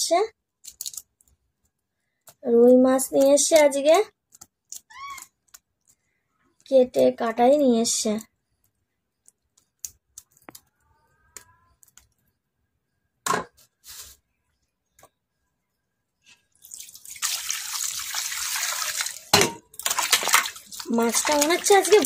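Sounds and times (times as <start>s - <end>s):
water pouring into steel bowl: 16.6s - 22.0s.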